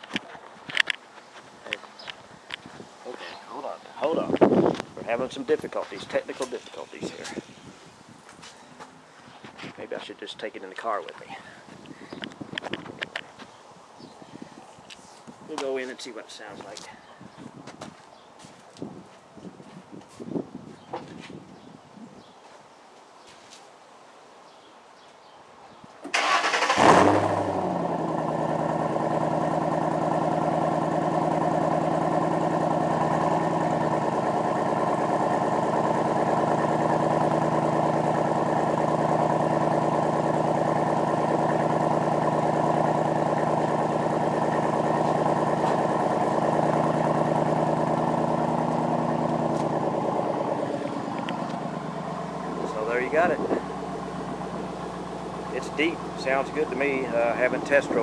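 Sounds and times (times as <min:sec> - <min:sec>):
car engine starting and idling: 0:26.0 - 0:58.0.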